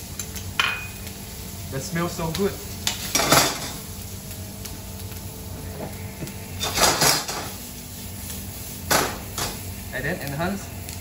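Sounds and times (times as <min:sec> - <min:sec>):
tongs working a pan: 0:00.0 - 0:01.1, 0:06.6 - 0:07.6
onion frying in a pan: 0:00.0 - 0:11.0.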